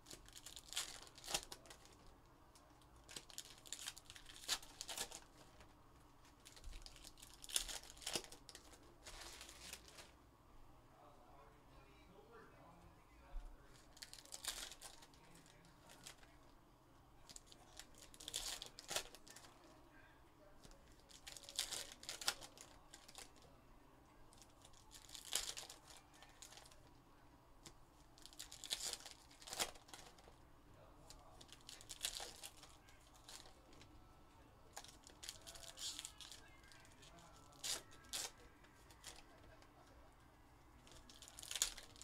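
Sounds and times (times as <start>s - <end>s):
foil packs torn and crinkled: 0.0s - 2.0s, 3.0s - 5.3s, 6.4s - 10.1s, 13.9s - 16.2s, 17.3s - 19.5s, 21.0s - 23.4s, 24.3s - 26.8s, 28.2s - 30.3s, 31.4s - 33.6s, 34.7s - 39.2s, 40.8s - 42.0s.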